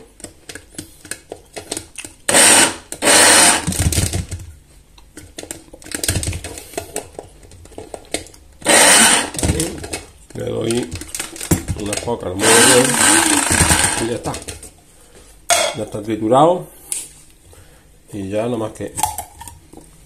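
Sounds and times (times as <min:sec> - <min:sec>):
knocks and handling sounds: 0:00.0 - 0:02.2, 0:03.7 - 0:08.6, 0:09.3 - 0:15.9
electric grinder bursts: 0:02.3 - 0:03.8, 0:08.6 - 0:09.4, 0:12.4 - 0:14.1.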